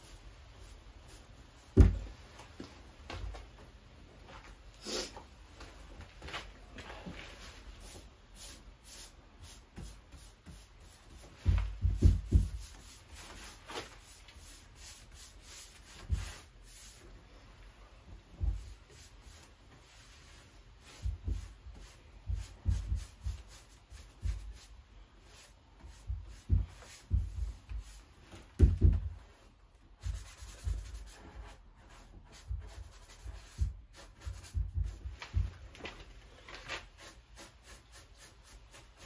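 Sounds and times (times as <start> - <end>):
paintbrush scrubbing on wood: 7.7 - 17.1, 18.4 - 28.5, 29.2 - 35.1, 36.8 - 39.0.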